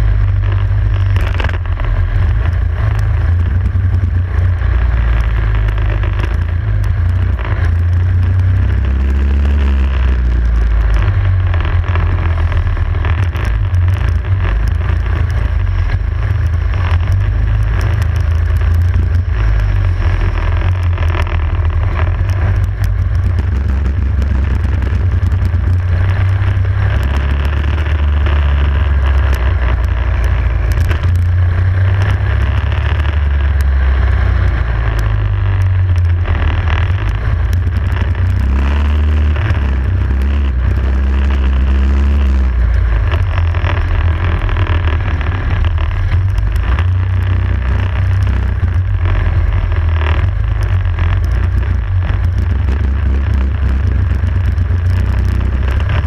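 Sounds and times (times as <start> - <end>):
kart engine revving: 0.0 - 56.0.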